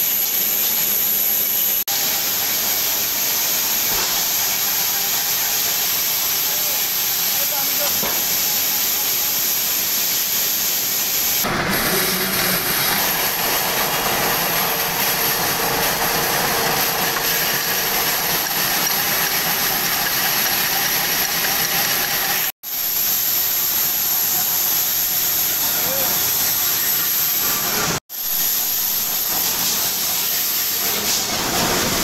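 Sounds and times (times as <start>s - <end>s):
bolt threading machine running: 11.4s - 22.5s.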